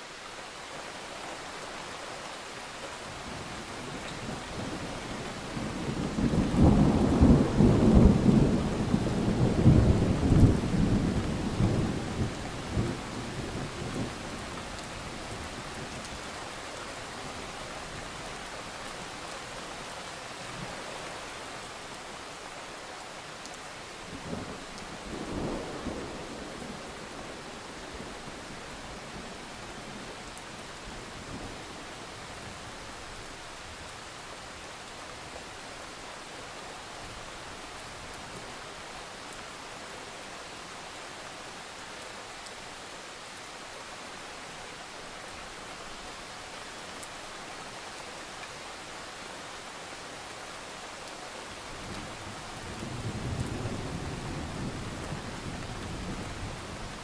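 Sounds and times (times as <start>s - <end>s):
heavy rain falling: 0.0s - 57.0s.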